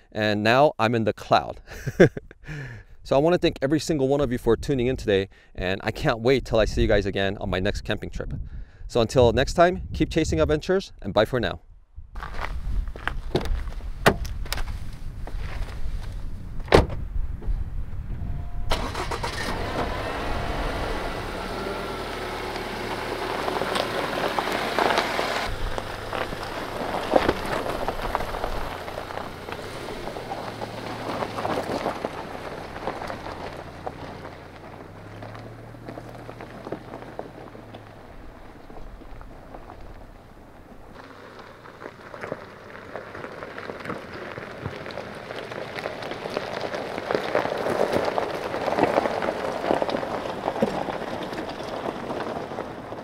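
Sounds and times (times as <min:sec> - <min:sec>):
tyres crunching on gravel: 0:12.2 - 0:16.7, 0:18.4 - 0:53.0
car engine: 0:16.0 - 0:53.0
car door shutting: 0:16.6 - 0:17.1.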